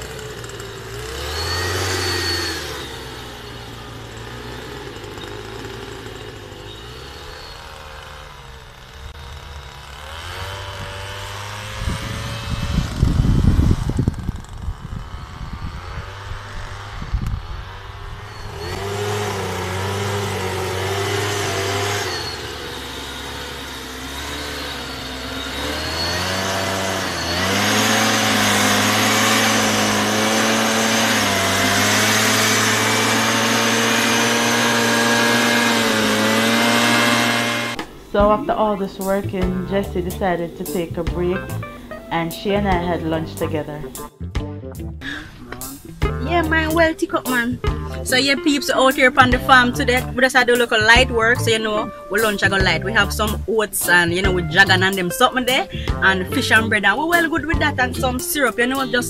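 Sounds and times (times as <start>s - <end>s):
two-stroke mist blower engine: 0.0s - 44.2s, 45.0s - 59.0s
heavy low rumbling: 8.8s - 58.3s.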